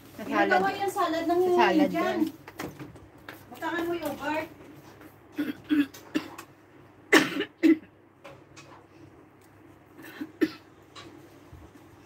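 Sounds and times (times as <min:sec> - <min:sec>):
woman coughing: 0:05.3 - 0:06.5, 0:07.1 - 0:07.9, 0:10.0 - 0:10.7.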